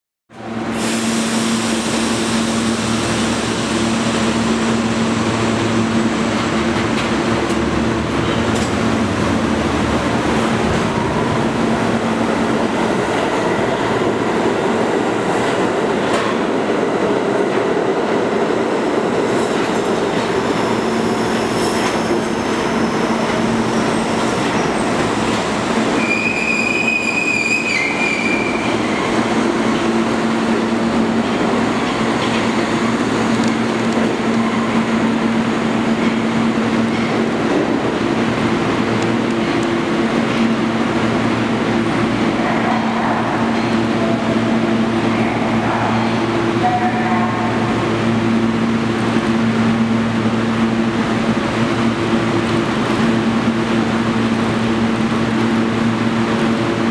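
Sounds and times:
train wheels rumbling on rail: 0:00.3 - 0:56.9
high wheel squeal: 0:26.0 - 0:29.2.

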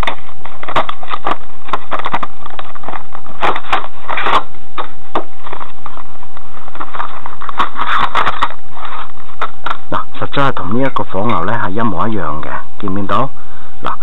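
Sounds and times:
plastic packaging crackling: 0:00.0 - 0:10.1.

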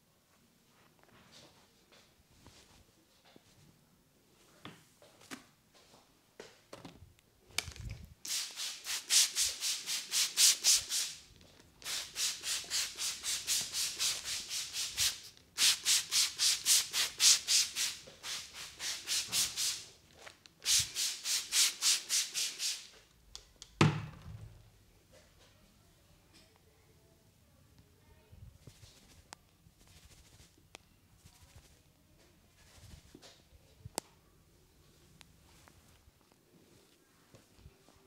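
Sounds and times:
hands rubbing hair: 0:08.3 - 0:23.0, 0:28.6 - 0:30.6, 0:31.2 - 0:31.8.

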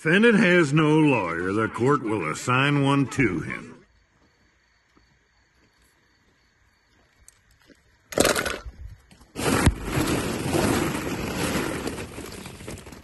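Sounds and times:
plastic balls clattering: 0:08.1 - 0:08.8, 0:09.4 - 0:13.0.

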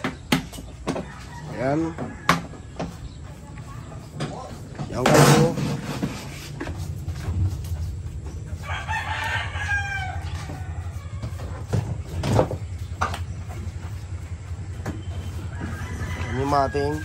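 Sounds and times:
steady low hum: 0:00.6 - 0:16.9
rooster crowing: 0:00.8 - 0:03.0, 0:08.6 - 0:11.9, 0:15.0 - 0:17.0.

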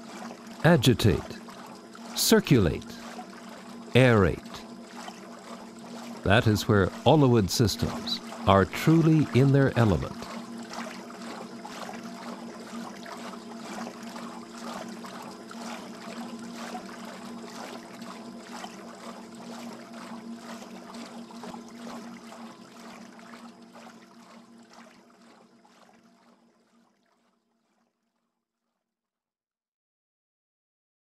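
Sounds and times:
steady hum: 0:00.0 - 0:24.7
water splashing and churning: 0:00.0 - 0:27.8.

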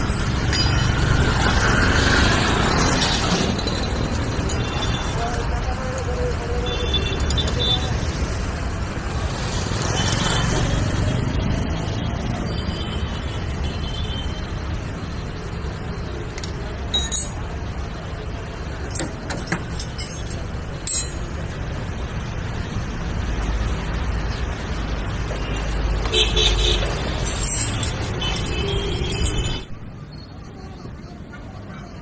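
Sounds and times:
road traffic rumble: 0:00.0 - 0:32.0
spanners clinking on metal: 0:00.4 - 0:01.0, 0:03.3 - 0:05.1, 0:16.4 - 0:17.4, 0:18.8 - 0:21.4, 0:27.0 - 0:29.6.

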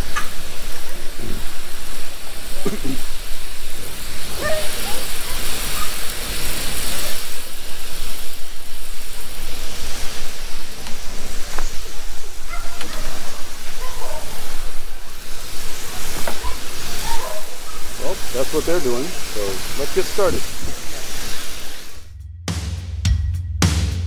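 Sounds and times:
pressure sprayer hissing: 0:00.0 - 0:22.1
low rumble: 0:21.9 - 0:24.0.

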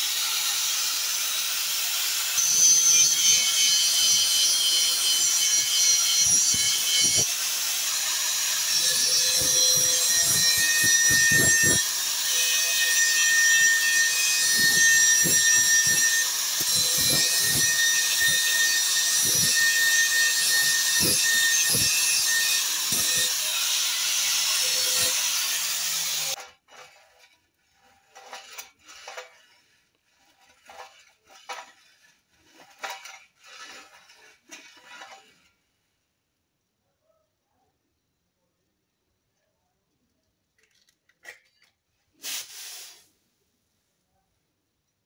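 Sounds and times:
angle grinder whining: 0:00.0 - 0:26.5
short scraping strokes: 0:26.3 - 0:35.4.

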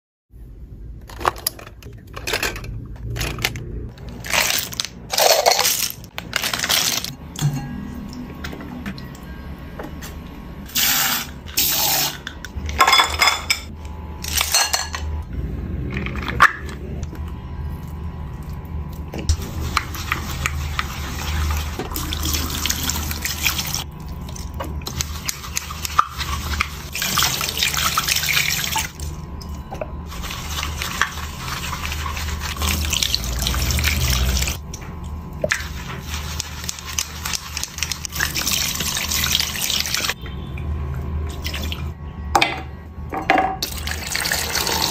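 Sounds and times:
brushes swishing in soapy water: 0:19.3 - 0:23.8, 0:24.9 - 0:28.6, 0:30.1 - 0:34.6, 0:35.5 - 0:40.1.

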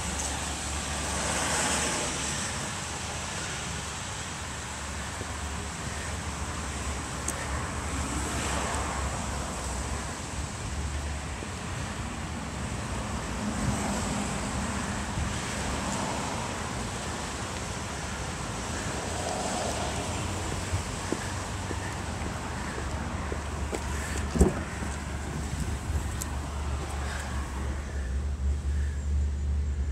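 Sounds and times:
road traffic rumble: 0:00.0 - 0:29.9
wind buffeting microphone: 0:19.2 - 0:27.8.

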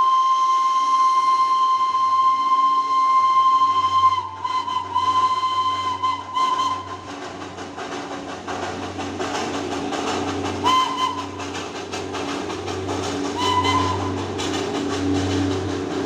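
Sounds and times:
steam whistle toots: 0:00.0 - 0:07.4, 0:10.6 - 0:11.7, 0:13.3 - 0:14.5
steam locomotive hissing: 0:00.0 - 0:16.0.

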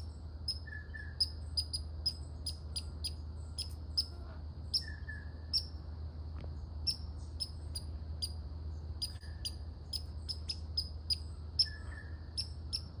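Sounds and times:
squirrel barking: 0:00.0 - 0:05.8, 0:09.0 - 0:13.0.

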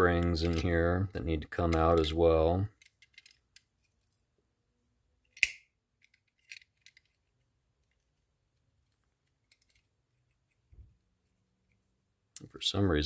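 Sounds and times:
small metal parts clicking: 0:00.1 - 0:00.8, 0:02.7 - 0:04.2, 0:05.3 - 0:08.0, 0:08.8 - 0:10.6.

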